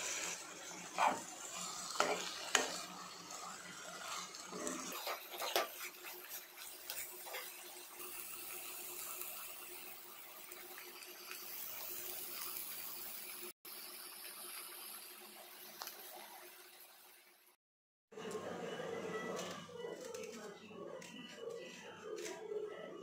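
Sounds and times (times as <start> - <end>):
frying sizzle: 0.0 - 17.6
spoon scraping a pan: 0.2 - 2.9, 4.0 - 7.7.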